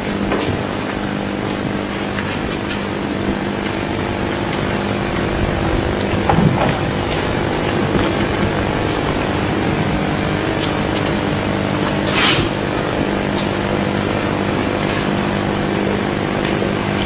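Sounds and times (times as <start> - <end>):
indoor hall hum and hiss: 0.0 - 17.0.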